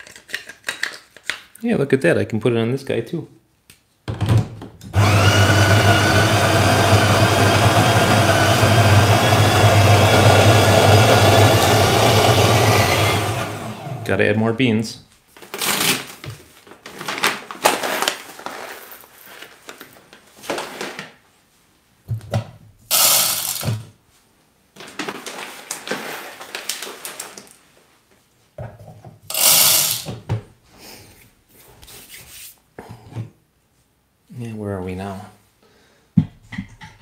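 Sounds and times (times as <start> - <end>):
coffee grinder running: 5.0 - 14.1, 22.9 - 23.8, 29.3 - 30.2
coffee beans rattling into hopper: 22.9 - 23.8, 29.3 - 30.2.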